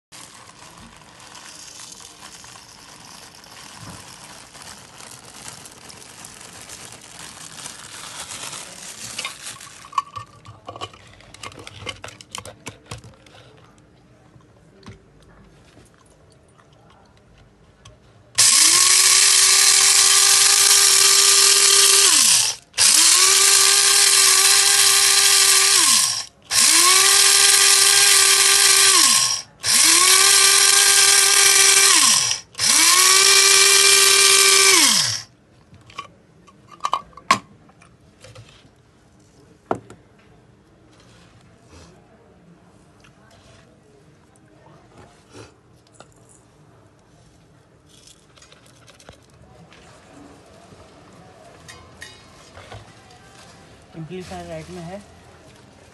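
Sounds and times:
rice grains pouring: 0:00.1 - 0:10.0
coffee grinder motor whine: 0:18.4 - 0:35.3.

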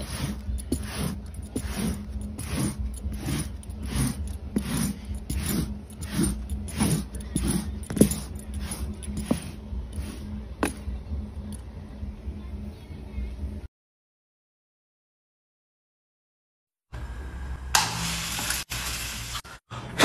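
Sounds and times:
tool scraping across carpet: 0:00.0 - 0:11.0.

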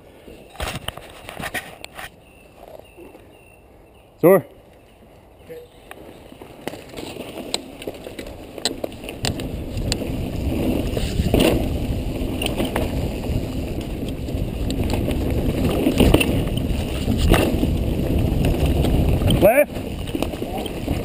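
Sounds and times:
bike tyres on dirt trail: 0:04.6 - 0:21.0
bike clicks and knocks: 0:05.8 - 0:21.0
wind on microphone: 0:08.9 - 0:21.0.

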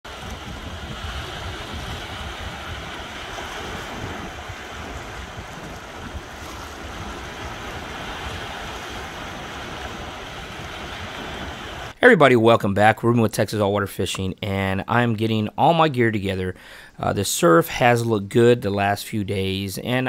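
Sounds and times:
waves breaking on beach: 0:00.0 - 0:12.0
wind buffeting microphone: 0:00.0 - 0:12.0.

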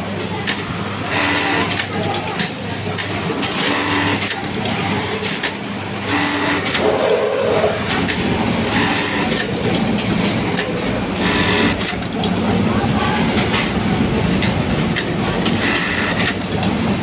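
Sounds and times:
factory machine noise: 0:00.0 - 0:17.0.

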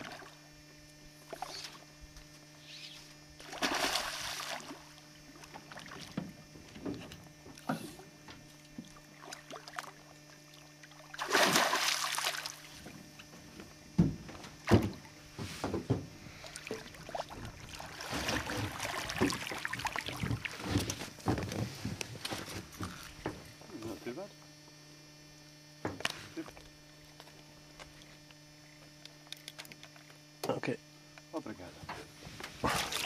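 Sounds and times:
fish thrashing and splashing: 0:03.4 - 0:04.8, 0:10.9 - 0:12.8, 0:16.5 - 0:21.1
fish striking with loud splash: 0:11.2 - 0:12.6.

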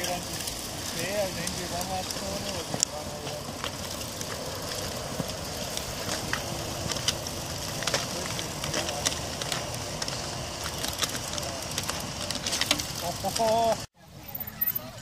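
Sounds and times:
clicks and crackles on dirt: 0:00.0 - 0:14.8.

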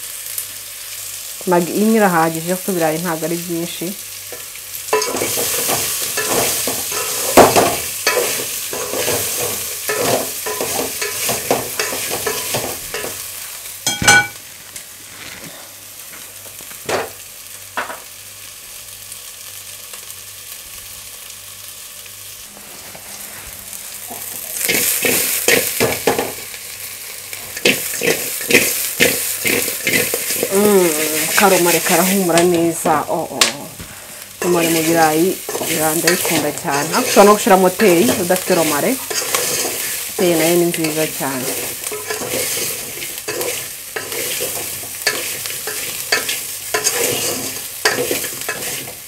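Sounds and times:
potatoes sizzling in a pot: 0:00.0 - 0:49.0
spatula scraping and clicking: 0:27.6 - 0:30.5, 0:35.5 - 0:40.0, 0:40.8 - 0:49.0.

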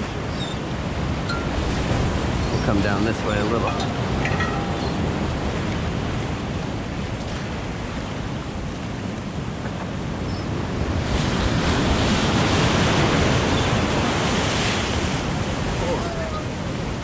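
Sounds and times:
wave crashing: 0:00.9 - 0:07.8.

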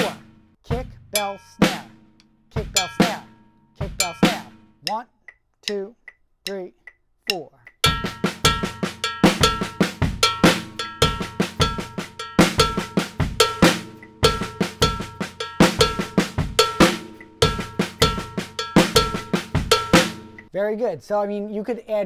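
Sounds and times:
drum kit groove: 0:00.0 - 0:05.0, 0:07.7 - 0:20.5
cowbell ringing: 0:01.2 - 0:01.8, 0:02.8 - 0:04.7, 0:07.8 - 0:20.5.

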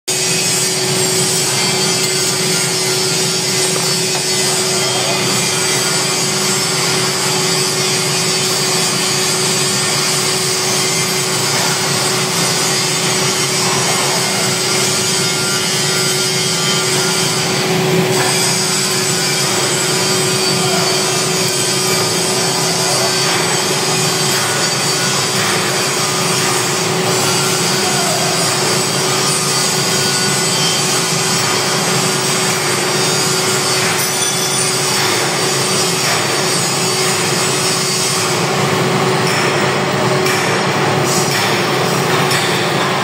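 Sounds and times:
metal lathe humming: 0:00.1 - 0:43.0.

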